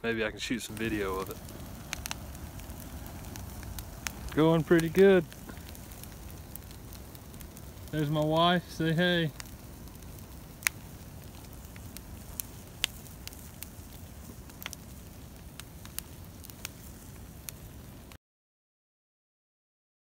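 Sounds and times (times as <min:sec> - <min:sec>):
low steady rumble: 0:00.0 - 0:17.4
burning wood crackling and popping: 0:00.2 - 0:18.2.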